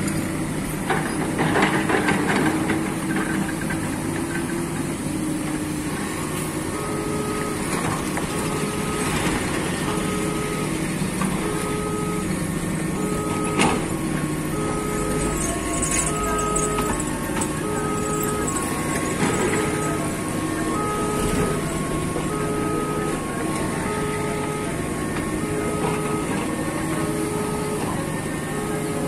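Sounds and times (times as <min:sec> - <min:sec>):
excavator diesel engine running: 0:00.0 - 0:29.0
two-tone electronic beeping: 0:06.7 - 0:29.0.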